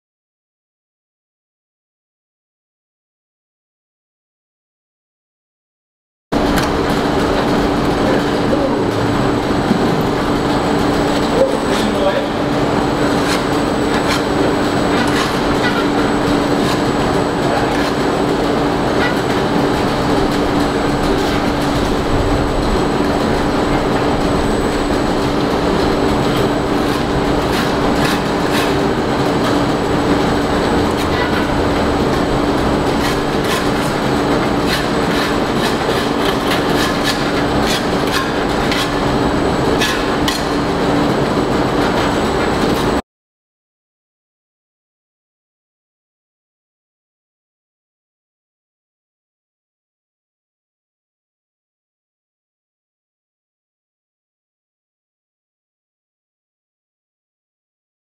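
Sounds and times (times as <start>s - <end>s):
machine running with low tone: 6.4s - 43.0s.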